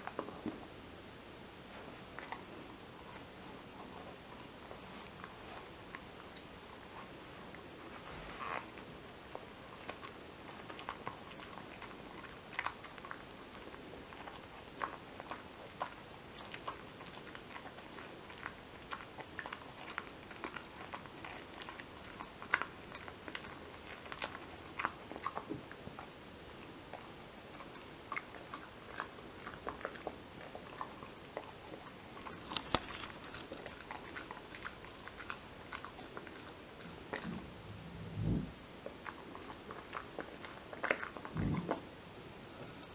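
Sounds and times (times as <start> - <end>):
dog chewing a dental chew: 4.1 - 37.4, 38.8 - 41.8
teeth crunching and clicking: 9.3 - 37.4.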